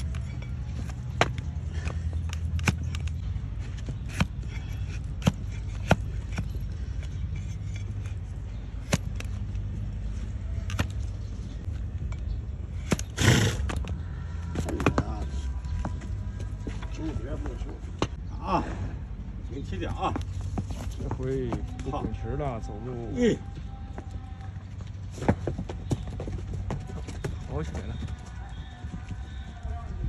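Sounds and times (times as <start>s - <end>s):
blade clicking on hoof: 0.0s - 9.8s
blade scraping hoof: 0.0s - 11.6s, 12.7s - 16.0s.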